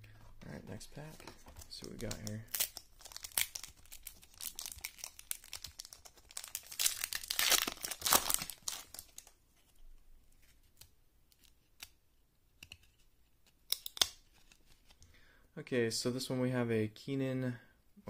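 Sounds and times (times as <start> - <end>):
foil wrapper tearing and crinkling: 2.1 - 9.3
faint clicks of cards handled: 10.4 - 15.2.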